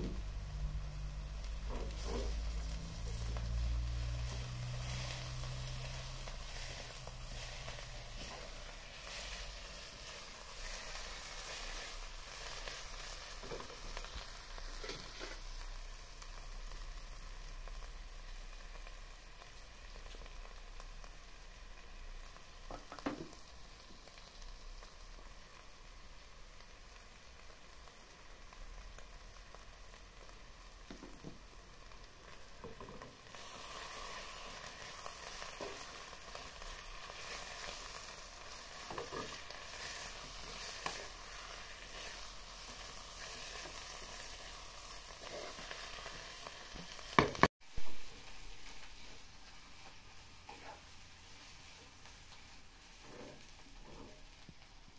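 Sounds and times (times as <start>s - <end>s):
food sizzling in a pan: 0.0s - 54.9s
knocks on a pan: 22.7s - 23.3s, 47.2s - 47.5s.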